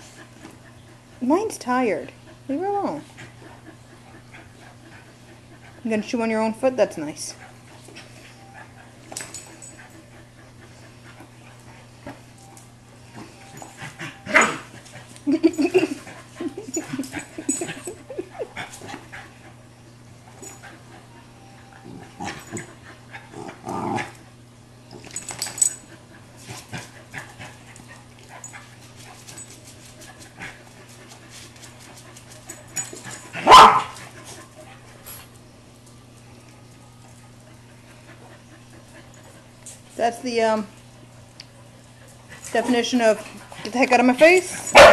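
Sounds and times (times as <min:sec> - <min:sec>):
dogs grumbling: 0:13.1 - 0:19.4, 0:21.8 - 0:24.3
dogs barking: 0:33.4 - 0:34.0, 0:44.7 - 0:44.9.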